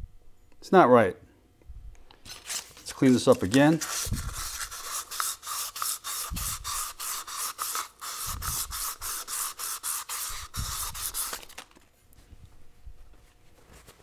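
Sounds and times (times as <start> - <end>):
sandpaper rasping on metal: 3.0 - 11.6.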